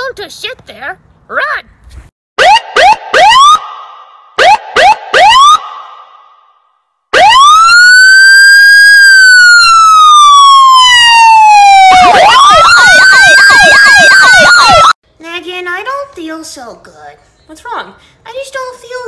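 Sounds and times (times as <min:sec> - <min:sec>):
electronic siren wailing: 0:02.4 - 0:06.3, 0:07.1 - 0:15.0.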